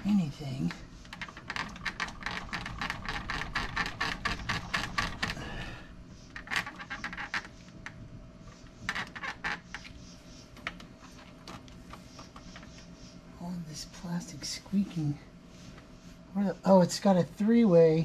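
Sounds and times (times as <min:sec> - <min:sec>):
plastic steering wheel squeaking: 0:01.0 - 0:05.5, 0:06.3 - 0:07.7, 0:08.6 - 0:10.0.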